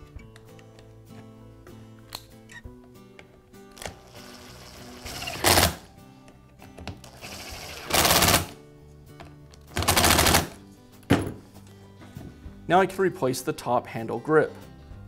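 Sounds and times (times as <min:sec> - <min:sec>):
background music: 0:00.0 - 0:15.0
cordless screwdriver whirring: 0:03.9 - 0:05.8, 0:07.1 - 0:08.5.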